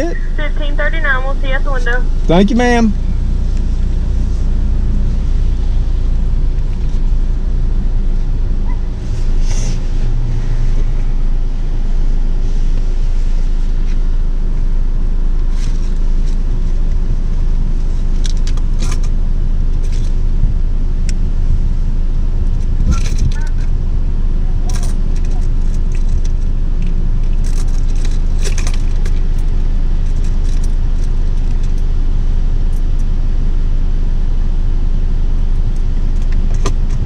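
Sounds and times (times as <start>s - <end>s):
car engine rumble inside cabin: 0.0s - 37.0s.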